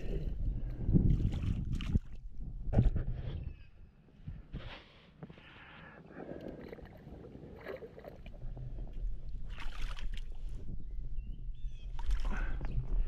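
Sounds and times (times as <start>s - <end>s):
wind rumble on microphone: 0.0s - 4.8s, 8.2s - 13.0s
water splashing: 6.5s - 8.5s, 9.4s - 10.4s.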